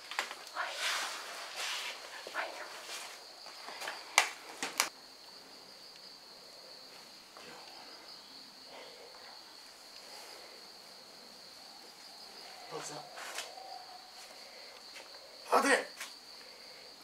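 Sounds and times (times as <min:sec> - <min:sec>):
insect trilling: 0:04.8 - 0:17.0.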